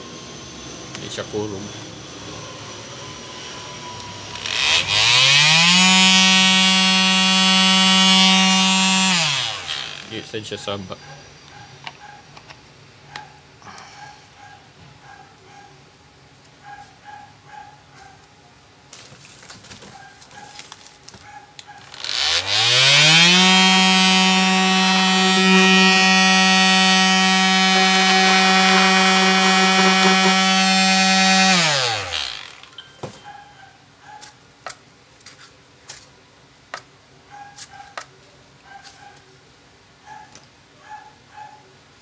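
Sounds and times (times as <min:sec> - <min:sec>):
orbital sander motor whine: 0:01.7 - 0:10.2, 0:21.8 - 0:32.8.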